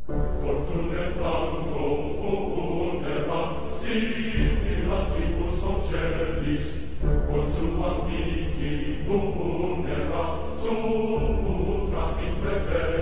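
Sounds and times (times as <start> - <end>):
choir-style chanting vocals: 0.1 - 13.0
deep bass: 4.3 - 10.2, 11.2 - 13.0.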